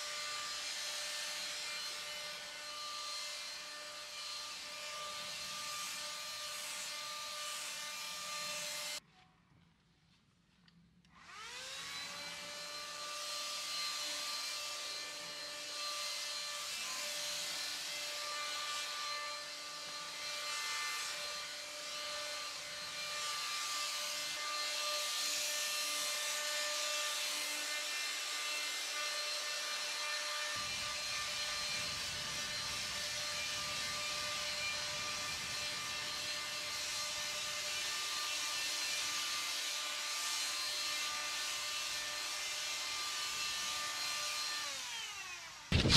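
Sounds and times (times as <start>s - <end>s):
paint sprayer motor whine: 11.1s - 24.8s, 28.1s - 39.4s, 44.2s - 45.9s
hiss of spraying air: 30.6s - 38.1s.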